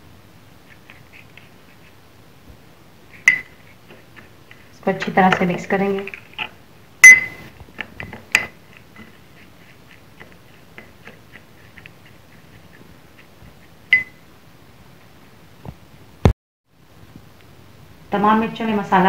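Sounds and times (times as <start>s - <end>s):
spoon stirring paste: 0.6s - 2.0s, 3.1s - 14.1s
metal spoon clinking on glass bowl: 7.0s - 7.4s.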